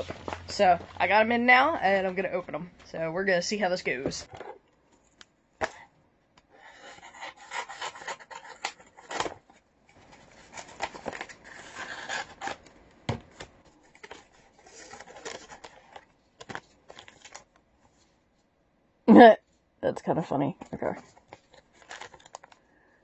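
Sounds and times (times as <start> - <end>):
paper rustling and scraping: 0.0 - 1.0, 6.6 - 12.7, 13.3 - 18.2
scissors cutting paper: 6.8 - 9.3.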